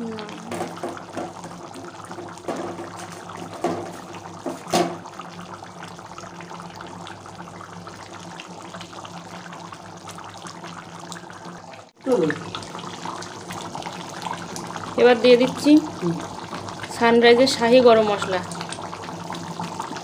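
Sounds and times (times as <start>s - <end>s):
gravy popping: 0.0s - 5.1s
curry bubbling: 0.0s - 20.0s.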